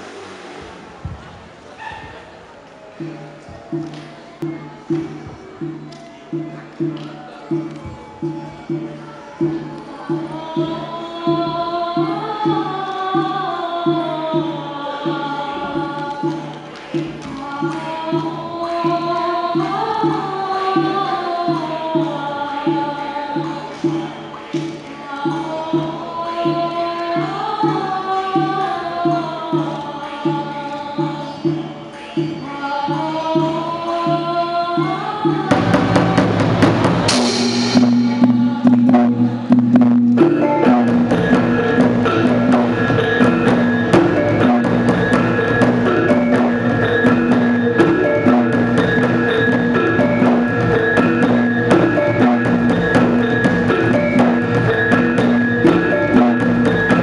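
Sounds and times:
person singing wavering melody: 3.0 - 57.0
ensemble with dense percussion: 35.5 - 57.0
low drum beat: 35.5 - 57.0.

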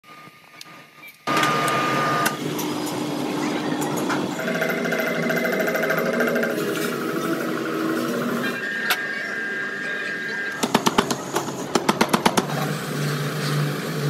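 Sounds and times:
high machine whine: 0.0 - 14.0
workshop machinery running: 0.0 - 14.0
rhythmic mechanical clatter: 2.2 - 9.0, 10.5 - 14.0.

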